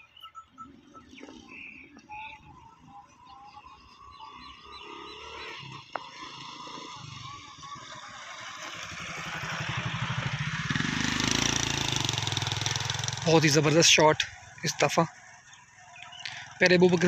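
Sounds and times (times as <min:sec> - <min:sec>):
birds chirping: 0:00.0 - 0:17.0
small engine running: 0:03.0 - 0:17.0.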